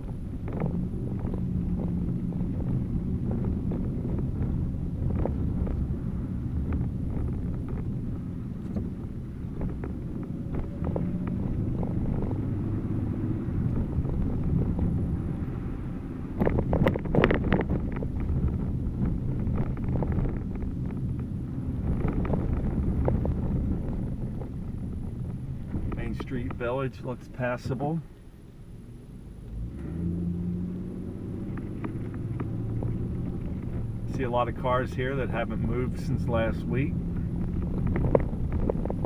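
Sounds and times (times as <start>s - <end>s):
car engine and tyres rumbling: 0.0s - 39.0s.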